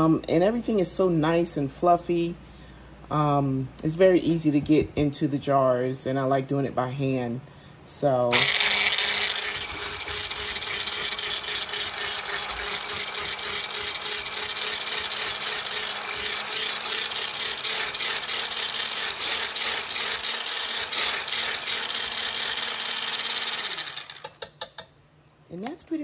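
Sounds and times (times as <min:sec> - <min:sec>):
blender motor hum: 0:08.3 - 0:24.4
whisk whirring through cream: 0:08.3 - 0:24.4.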